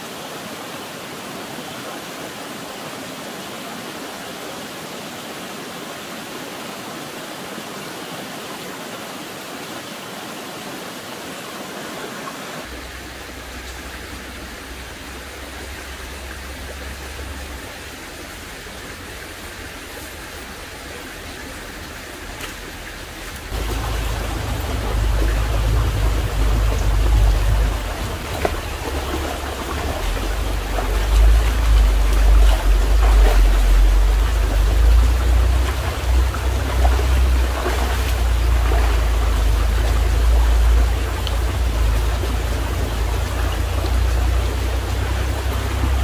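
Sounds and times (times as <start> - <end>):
stream water rushing: 0.0 - 46.0
heavy low rumble: 12.7 - 46.0.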